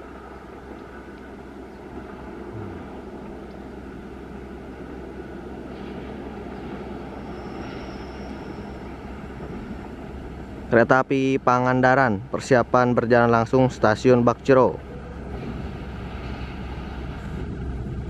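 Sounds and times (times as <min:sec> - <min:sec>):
locomotive engine drone: 0:00.0 - 0:18.0
faint high squeal: 0:06.8 - 0:09.9.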